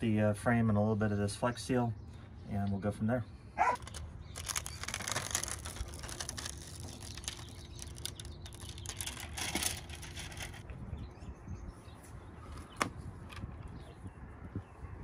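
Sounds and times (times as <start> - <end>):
plastic film crinkling: 3.6 - 10.6.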